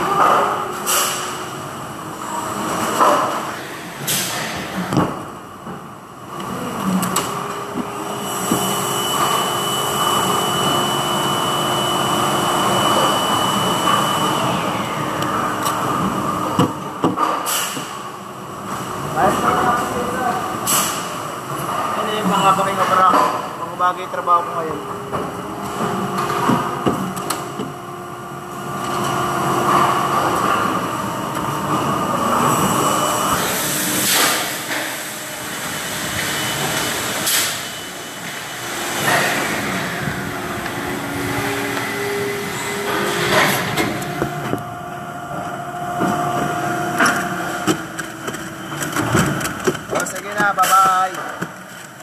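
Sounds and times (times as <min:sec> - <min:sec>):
factory machinery drone: 0:00.0 - 0:52.0.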